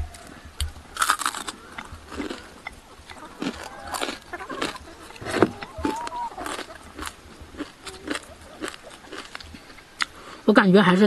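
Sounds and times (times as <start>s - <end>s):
person chewing crisp food: 0.0s - 10.4s.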